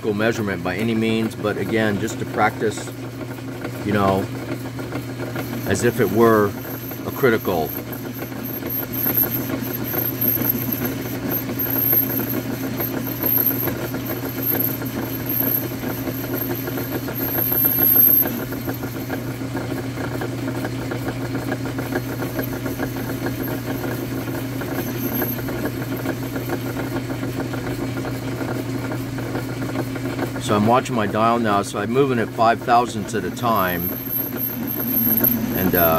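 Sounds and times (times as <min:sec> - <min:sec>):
metal lathe motor hum: 0:00.6 - 0:30.5, 0:32.2 - 0:35.9
tool bit cutting metal: 0:05.4 - 0:18.8, 0:22.4 - 0:26.0.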